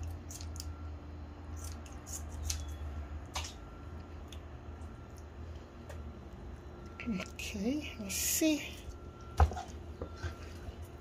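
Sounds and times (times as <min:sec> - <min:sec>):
steady low hum: 0:00.0 - 0:11.0
kitchen shears snipping: 0:01.6 - 0:03.6.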